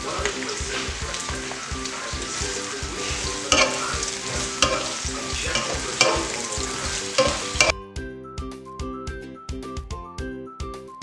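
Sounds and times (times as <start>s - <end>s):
eggplant sizzling in a wok: 0.0s - 7.8s
background music with steady beat: 0.0s - 11.0s.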